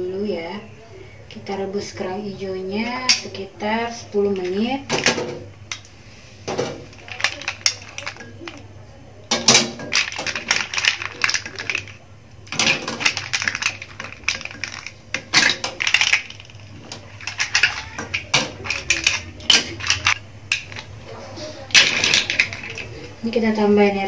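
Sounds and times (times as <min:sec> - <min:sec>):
mussel shells clattering: 0:06.5 - 0:21.0, 0:21.6 - 0:23.2.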